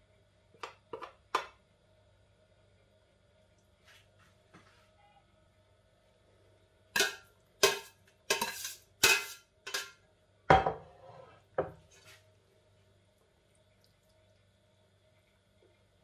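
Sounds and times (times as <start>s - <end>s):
metal spoon scraping glass dish: 7.7s - 9.9s.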